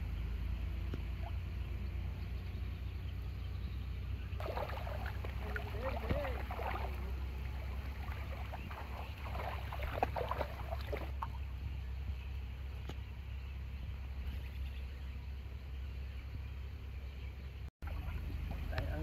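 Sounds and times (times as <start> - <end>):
feet splashing in water: 4.4 - 11.4.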